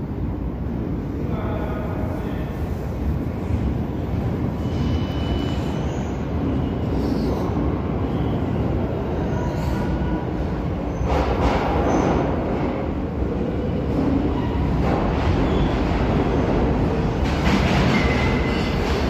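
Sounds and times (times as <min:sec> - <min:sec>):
subway train rumble: 0:00.0 - 0:19.0
faint high squeals: 0:04.5 - 0:10.2.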